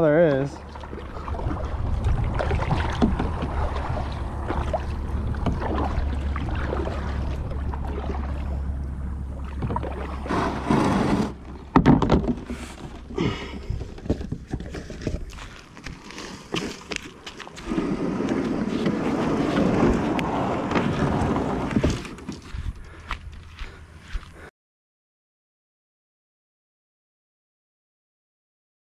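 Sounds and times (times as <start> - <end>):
plastic hull knocking and scraping: 0.2 - 8.3, 9.5 - 15.6, 17.7 - 22.4
paddle stroke in water: 0.2 - 23.0
scraping rustle: 10.2 - 11.5
footsteps on dirt and grass: 12.4 - 20.1, 21.7 - 24.5.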